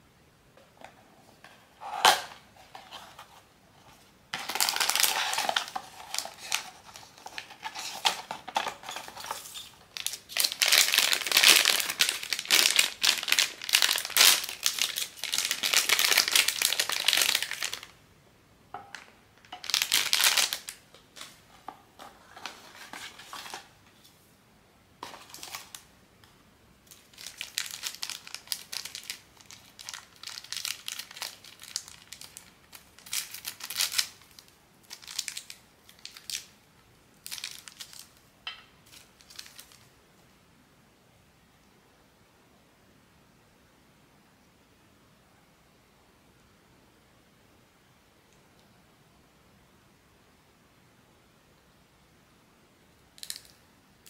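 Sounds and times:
packaging crinkling: 0:04.3 - 0:17.9, 0:19.5 - 0:21.4, 0:26.9 - 0:36.5, 0:37.2 - 0:38.2, 0:38.8 - 0:39.9
packaging snapping: 0:04.4 - 0:17.9.

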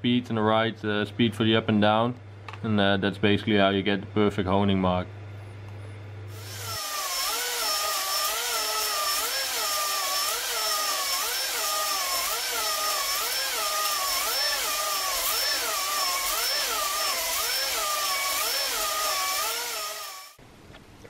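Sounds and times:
drill-driven hone whining: 0:06.3 - 0:20.4.

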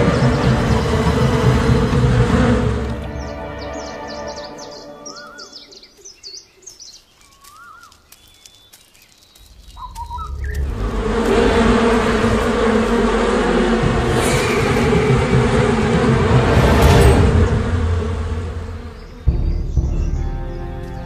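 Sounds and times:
loud rushing drone: 0:00.0 - 0:04.4, 0:09.5 - 0:20.1
birds chirping: 0:00.0 - 0:21.0
whistled bird call: 0:03.1 - 0:08.5, 0:09.7 - 0:10.7.

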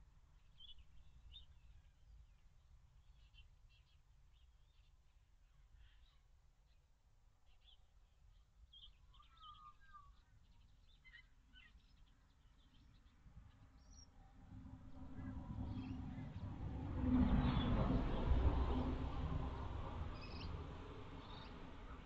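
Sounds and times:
faint bird chirps: 0:07.5 - 0:13.0.

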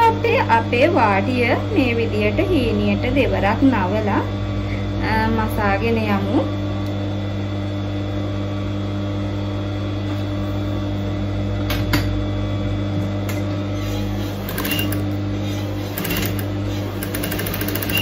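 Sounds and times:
sewing machine running: 0:13.8 - 0:18.0.

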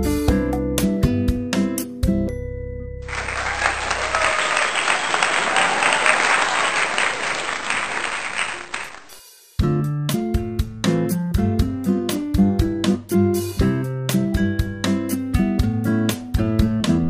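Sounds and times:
crowd clapping: 0:03.0 - 0:09.2.

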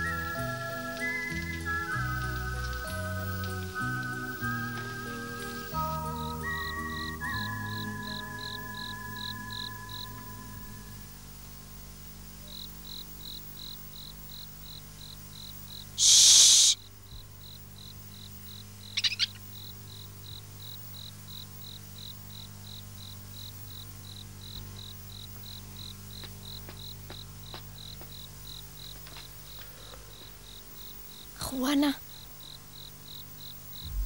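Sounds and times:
cricket chirping: 0:00.0 - 0:34.0
loud hiss: 0:16.0 - 0:16.8.

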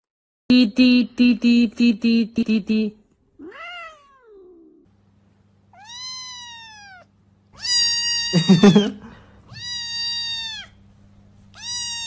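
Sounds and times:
cat meowing: 0:03.4 - 0:04.9, 0:05.8 - 0:08.9, 0:09.5 - 0:10.8, 0:11.5 - 0:12.0.

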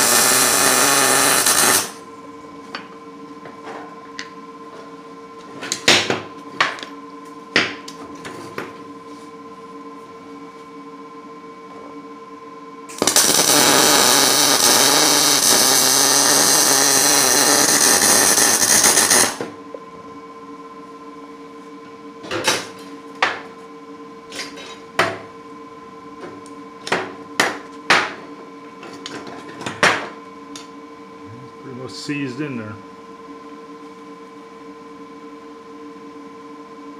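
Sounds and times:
welder arc crackling hiss: 0:00.0 - 0:02.0, 0:12.9 - 0:19.4.

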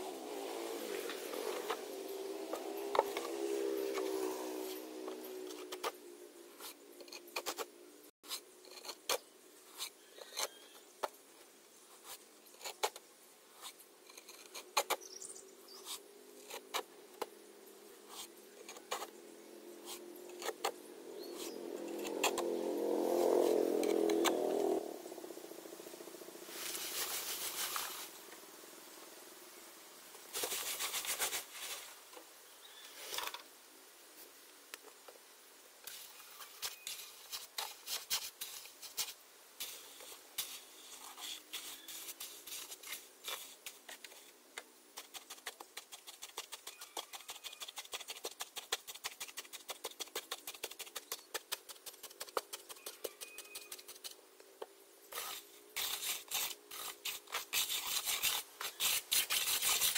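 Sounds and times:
trowel scraping cement mix: 0:06.6 - 0:10.8, 0:11.9 - 0:15.1, 0:18.0 - 0:19.1, 0:19.8 - 0:22.4, 0:30.3 - 0:31.8, 0:35.9 - 0:44.4, 0:45.0 - 0:54.2, 0:55.1 - 0:59.9
trowel patting: 0:45.0 - 0:54.2.

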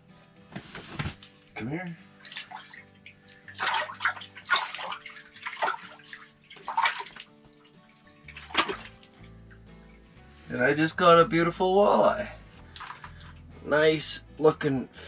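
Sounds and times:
water splashing and sloshing: 0:02.1 - 0:10.3, 0:12.6 - 0:13.4.

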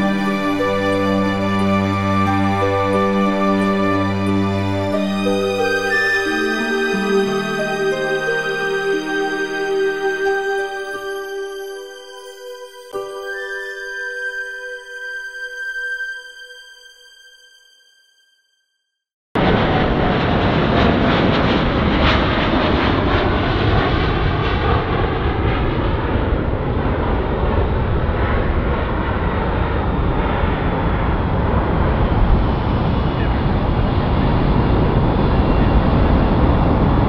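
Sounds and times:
jet engine roar: 0:00.0 - 0:11.1, 0:19.4 - 0:37.0.

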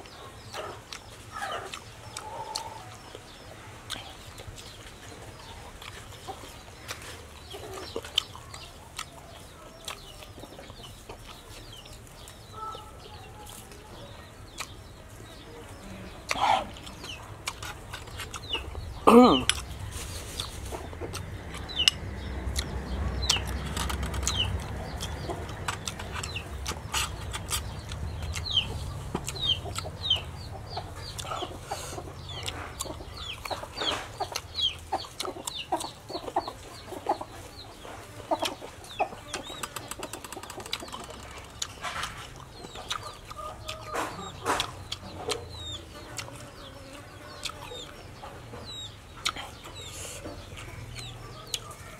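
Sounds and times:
chickens clucking and peeping: 0:00.0 - 0:51.9
crunching raw vegetables: 0:16.2 - 0:31.6.

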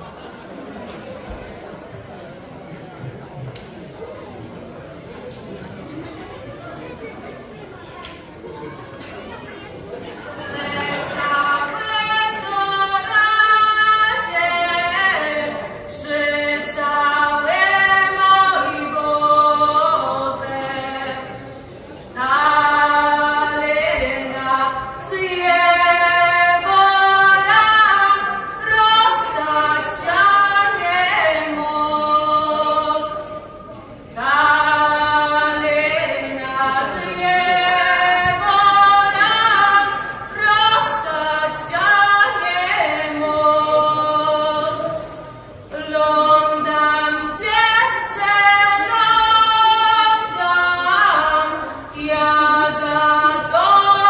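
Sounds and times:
woman singing unaccompanied: 0:10.4 - 0:21.5, 0:22.1 - 0:54.0.

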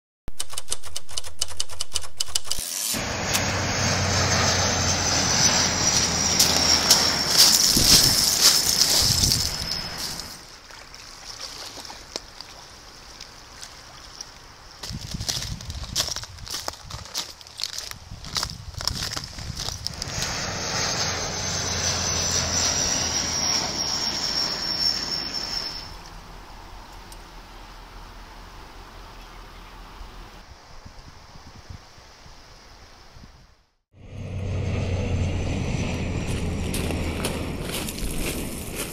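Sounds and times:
turboprop airliner passing overhead: 0:03.0 - 0:10.5, 0:19.8 - 0:26.6, 0:34.0 - 0:38.9
footsteps on shingle: 0:05.5 - 0:10.4, 0:14.8 - 0:20.4, 0:36.2 - 0:38.9.

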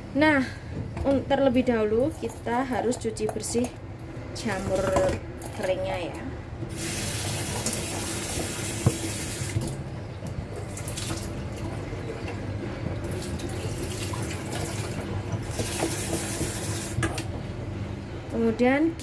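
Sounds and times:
tap running into metal sink: 0:06.7 - 0:09.7.

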